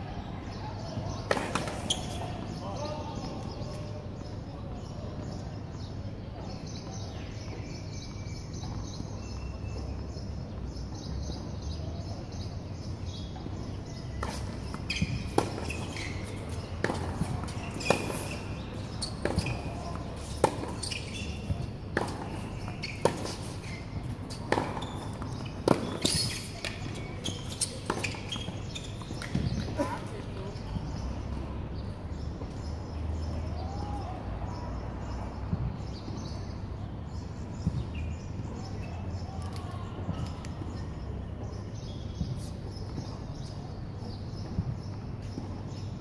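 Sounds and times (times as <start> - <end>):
tennis ball bouncing on hard court: 0.9 - 2.6, 13.2 - 29.8
tennis ball struck with rackets: 14.1 - 29.8.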